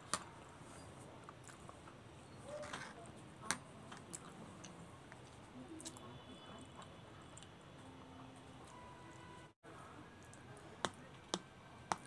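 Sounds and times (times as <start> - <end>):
chewing noodles: 3.8 - 9.5.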